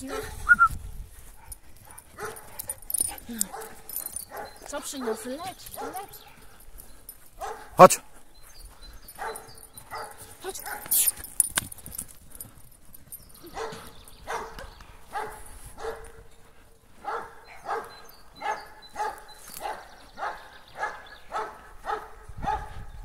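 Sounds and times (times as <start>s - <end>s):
dog barking: 0.0s - 0.4s, 1.5s - 2.8s, 3.4s - 6.2s, 7.4s - 7.9s, 9.2s - 11.0s, 13.5s - 16.3s, 17.0s - 22.9s.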